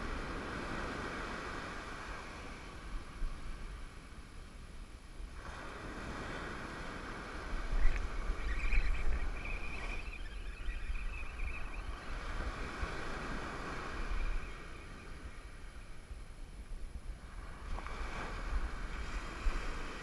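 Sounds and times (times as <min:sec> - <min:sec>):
wind on microphone: 0:00.0 - 0:20.0
ocean surf breaking: 0:05.3 - 0:16.3, 0:17.2 - 0:20.0.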